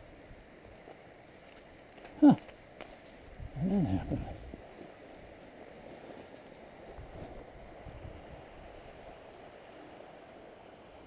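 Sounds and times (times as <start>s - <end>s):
wind buffeting microphone: 3.2s - 4.7s.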